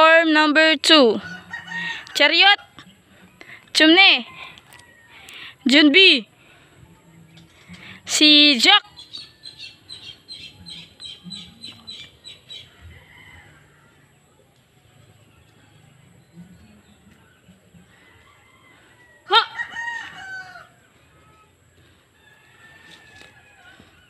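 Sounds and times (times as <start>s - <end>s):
rooster crowing: 1.2s - 2.2s, 12.7s - 14.2s, 17.9s - 20.8s, 22.2s - 24.0s
bird chirping: 8.6s - 12.8s.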